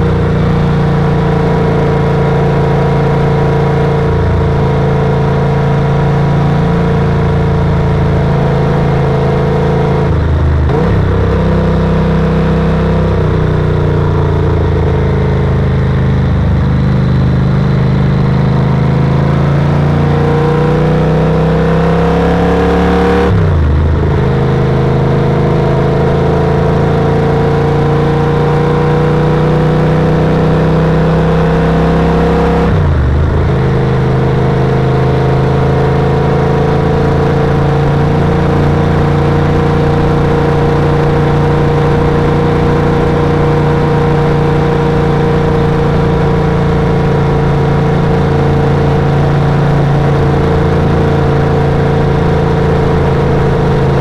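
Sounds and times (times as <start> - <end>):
motorcycle engine under load: 0.0 - 54.0
road and wind noise: 0.0 - 54.0.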